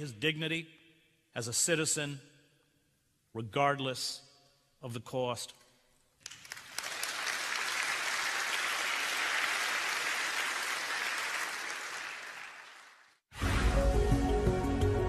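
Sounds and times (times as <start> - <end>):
audience applauding: 6.2 - 13.2.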